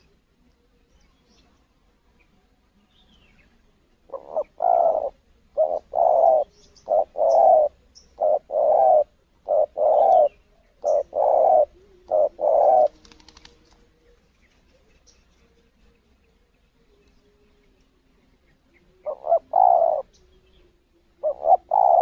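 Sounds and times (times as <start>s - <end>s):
dove cooing: 4.0s - 15.6s, 18.8s - 22.0s.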